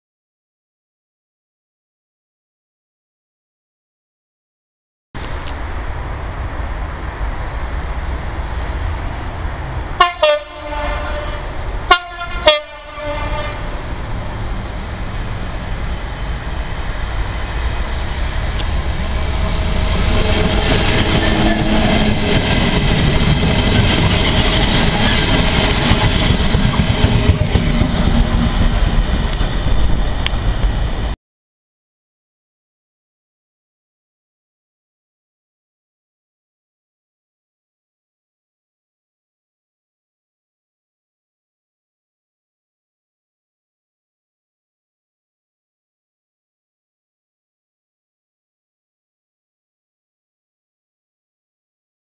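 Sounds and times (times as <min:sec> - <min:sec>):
train engine and wagons passing: 0:05.2 - 0:31.2
locomotive horn blasts: 0:10.0 - 0:13.9, 0:19.4 - 0:22.4.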